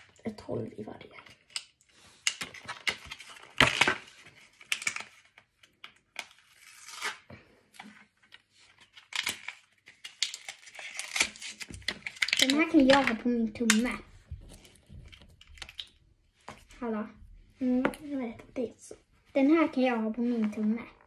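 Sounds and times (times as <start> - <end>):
plastic packaging crinkling: 8.2 - 13.8.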